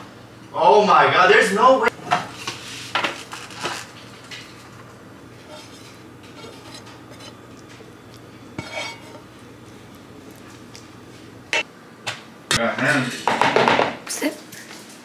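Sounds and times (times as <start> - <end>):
low steady hum: 0.0 - 13.0
dishes and utensils clinking: 8.6 - 9.3.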